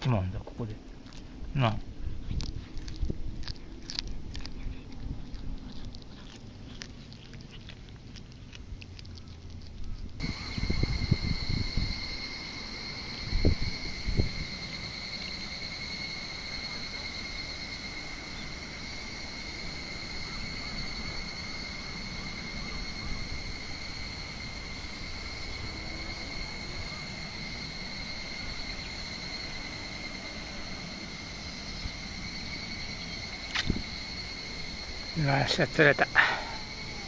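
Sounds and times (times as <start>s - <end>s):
insect high-pitched trill: 0.0s - 37.0s
low rumble: 0.7s - 16.4s.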